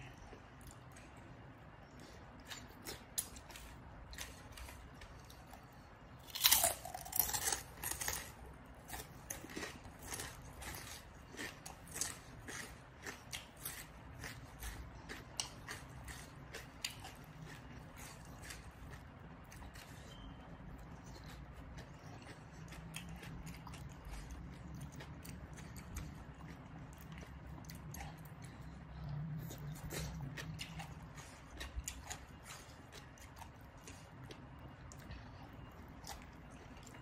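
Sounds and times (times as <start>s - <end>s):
crunchy chewing of vegetables: 0.0s - 37.0s.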